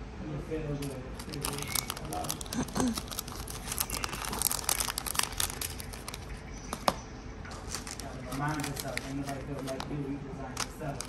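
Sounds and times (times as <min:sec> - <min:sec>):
plastic bag crinkling: 0:00.8 - 0:06.9, 0:07.5 - 0:11.0
plastic boxes clicking and tapping: 0:03.0 - 0:11.0.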